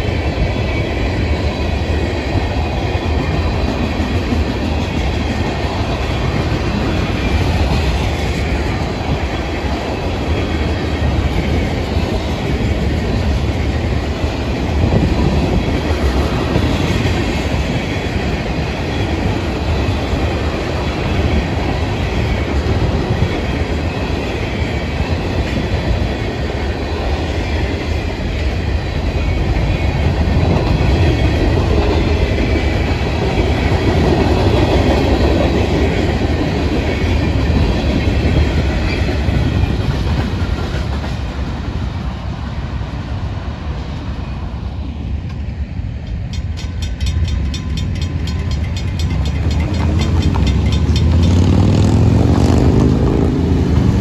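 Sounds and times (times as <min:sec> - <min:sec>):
train wheels clattering on rails: 0:00.0 - 0:43.3, 0:45.2 - 0:54.0
crossing bell ringing: 0:46.1 - 0:52.7
vehicles revving: 0:49.5 - 0:54.0.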